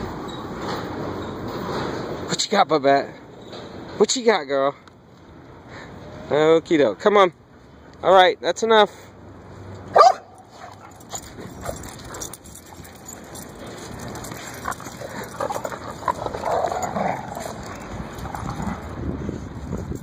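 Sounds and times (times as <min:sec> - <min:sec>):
dog yipping: 0:09.9 - 0:12.3
dogs whining and growling: 0:10.6 - 0:19.0.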